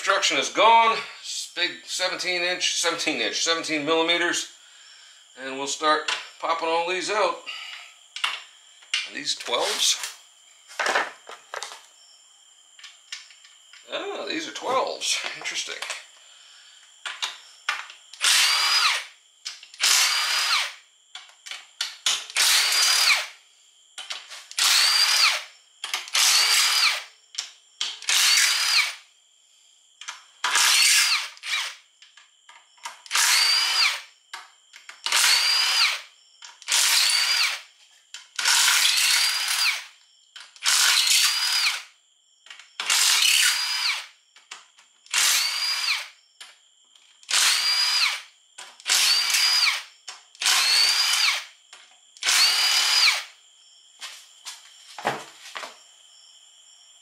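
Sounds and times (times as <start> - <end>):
power driver motor whine: 18.2 - 19.0, 19.8 - 20.7, 24.6 - 25.4, 33.2 - 34.0, 45.1 - 46.0, 47.3 - 48.2, 48.9 - 49.8, 50.4 - 51.4, 52.2 - 53.3.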